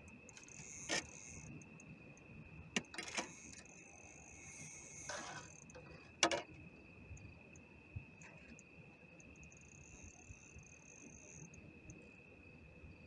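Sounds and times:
night insects trilling: 0.0 - 13.0.

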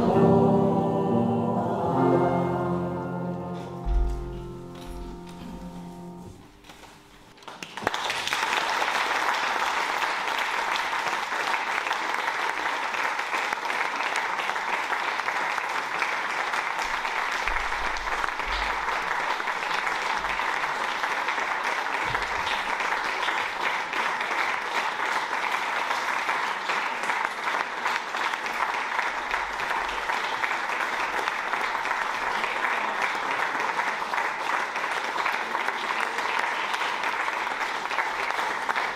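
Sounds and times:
music: 0.0 - 7.0
people applauding: 6.8 - 38.9.

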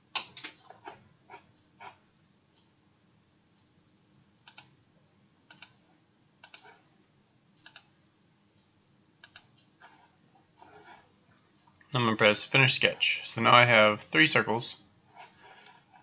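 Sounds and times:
computer mouse clicks: 0.1 - 1.0, 4.4 - 4.8, 5.4 - 5.8, 6.4 - 6.8, 7.6 - 8.0, 9.2 - 10.0.

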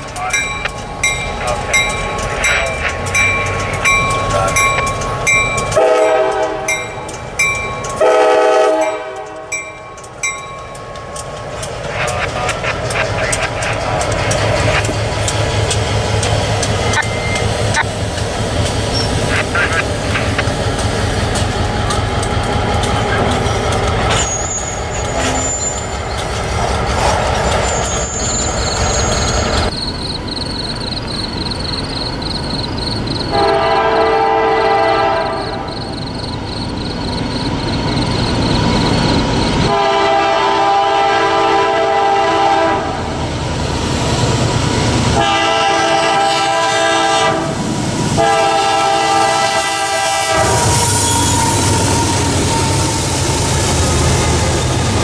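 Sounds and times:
crossing bell ringing: 0.0 - 12.5, 16.7 - 17.9
diesel engines rumbling: 0.0 - 55.0
locomotive air horn blasts: 5.8 - 6.8, 8.0 - 9.5, 33.3 - 35.7, 39.6 - 43.0, 45.2 - 47.6, 48.2 - 52.0.

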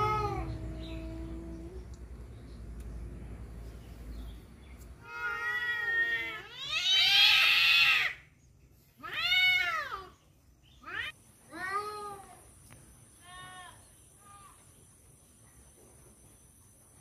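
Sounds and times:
cats yowling: 0.0 - 1.8, 5.0 - 8.2, 9.0 - 10.1.

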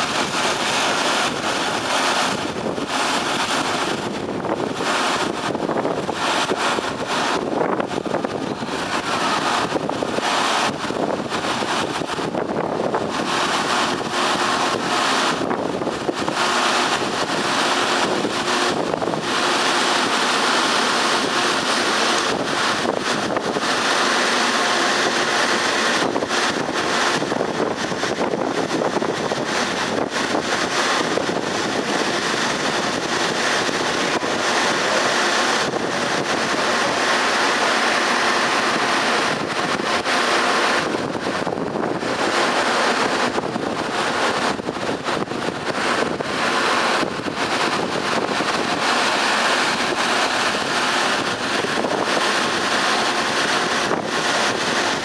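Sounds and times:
wind noise on microphone: 0.0 - 55.0.

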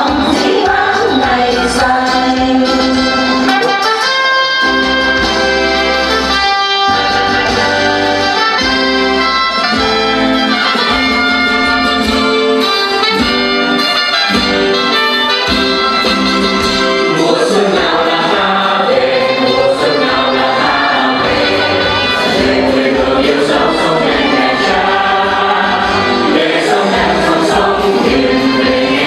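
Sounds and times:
brass melody: 2.8 - 29.0
orchestral accompaniment: 2.8 - 29.0.

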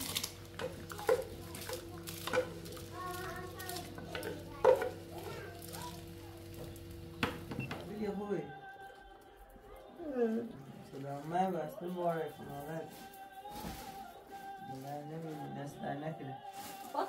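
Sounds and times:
steady low hum: 0.0 - 8.6.

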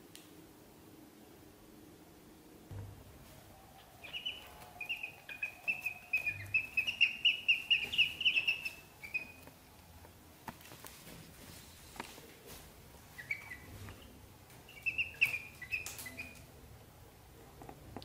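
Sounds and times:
ducklings peeping: 3.4 - 9.6, 13.0 - 16.5.

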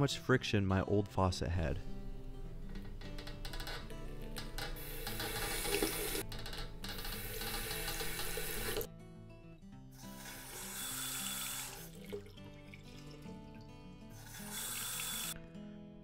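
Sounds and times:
background music: 0.0 - 16.0
water running from faucet: 4.8 - 6.2, 6.9 - 8.9, 10.1 - 15.4.

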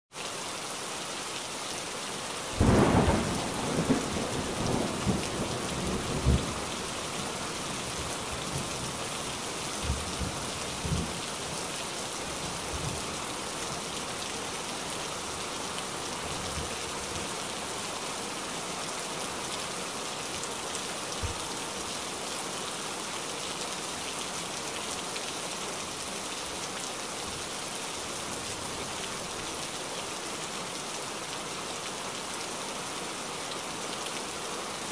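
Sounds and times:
rain hissing: 2.5 - 16.7.

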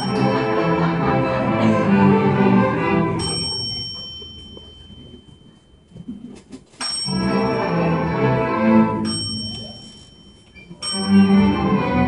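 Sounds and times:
bell ringing: 0.0 - 1.0, 3.1 - 6.1, 6.8 - 12.0
string orchestra playing: 0.0 - 3.5, 7.1 - 9.3, 10.8 - 12.0.

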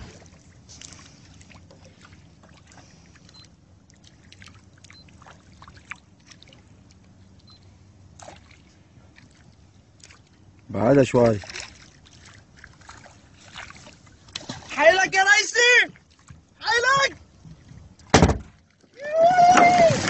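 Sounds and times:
water lapping and trickling: 0.0 - 20.0
knock or splash: 18.1 - 18.6.

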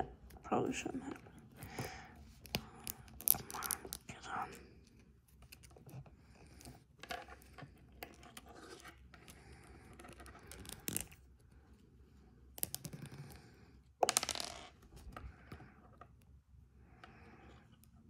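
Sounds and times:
plastic figure parts clicking: 1.8 - 4.0.

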